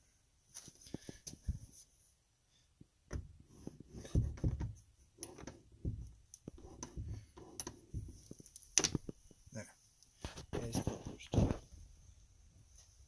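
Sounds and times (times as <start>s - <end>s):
door scraping and bumping: 3.9s - 8.2s.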